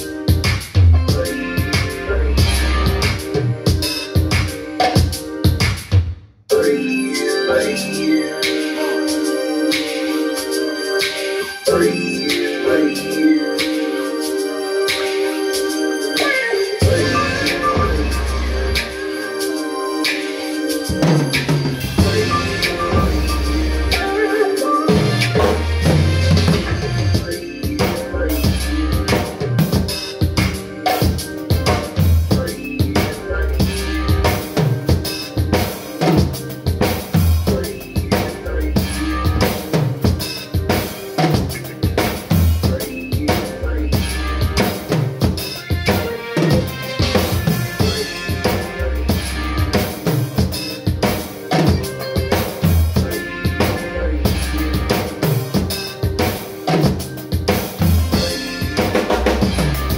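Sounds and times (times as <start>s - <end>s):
drum kit playing: 0.0s - 6.2s, 16.2s - 59.9s
recorded song: 0.0s - 59.9s.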